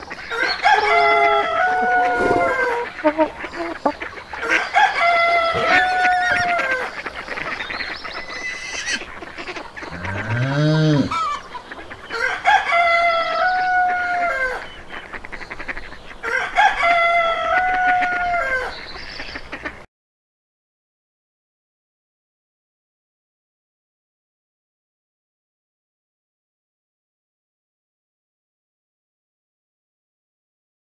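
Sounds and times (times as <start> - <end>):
rooster crowing: 0.3 - 3.2, 4.4 - 7.0, 9.9 - 11.4, 12.1 - 14.6, 16.2 - 18.7
short low bird call: 1.8 - 3.0.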